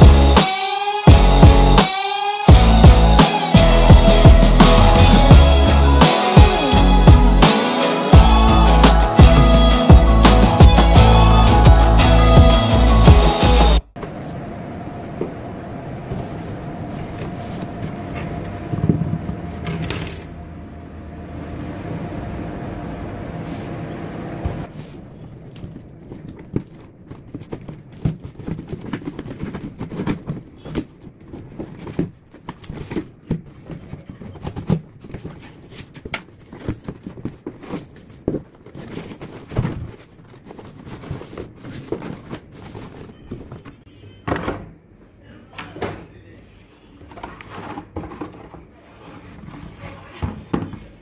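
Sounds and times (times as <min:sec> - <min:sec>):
cardboard box being handled: 0:25.7 - 0:43.8.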